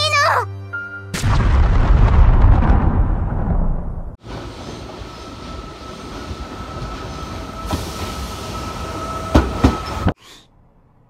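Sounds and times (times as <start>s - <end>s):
train rumble with high whine: 4.2s - 11.0s.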